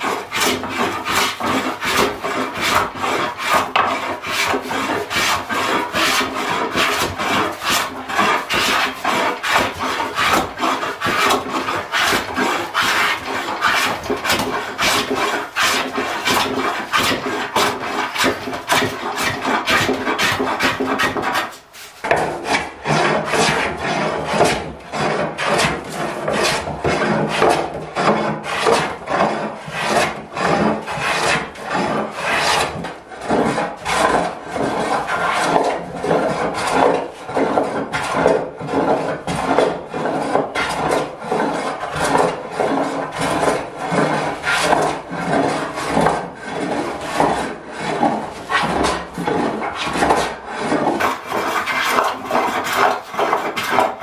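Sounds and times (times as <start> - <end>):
hand plane rasping on wood: 0.0 - 54.0.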